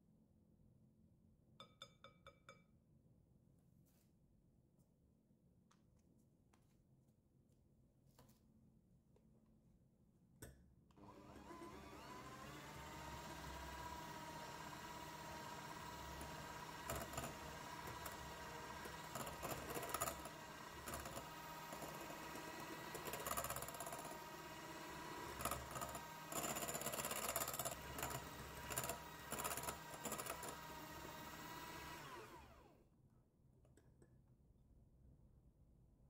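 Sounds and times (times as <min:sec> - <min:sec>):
electric hand mixer running: 0:11.0 - 0:32.8
mixer motor winding down: 0:11.0 - 0:32.8.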